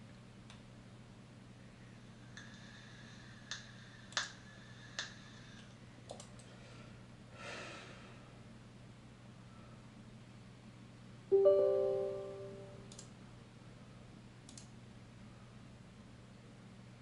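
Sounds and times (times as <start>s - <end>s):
low steady hum: 0.0s - 17.0s
computer mouse clicking: 5.0s - 6.5s, 14.5s - 14.7s
faint high tone: 11.3s - 12.9s.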